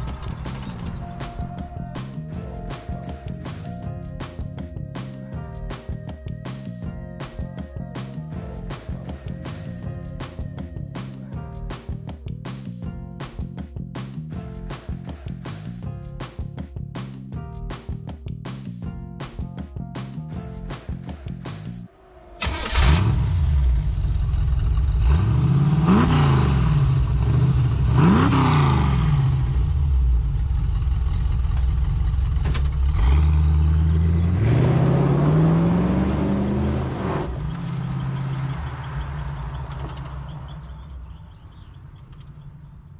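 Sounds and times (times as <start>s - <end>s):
car engine starting and revving: 22.3s - 42.0s
truck pulling away: 22.4s - 42.9s.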